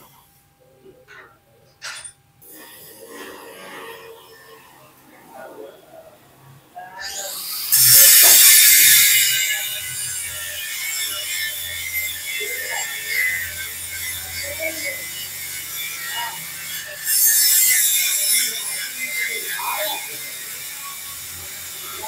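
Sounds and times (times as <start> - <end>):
hissing scraping burst: 2.4 - 5.0, 7.1 - 22.0.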